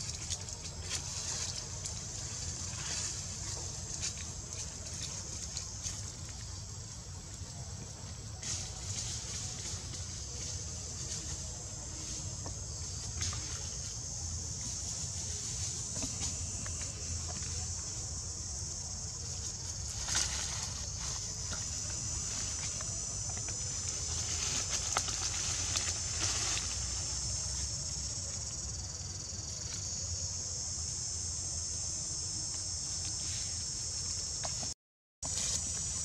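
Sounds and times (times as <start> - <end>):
high-pitched insect drone: 0.0 - 36.0.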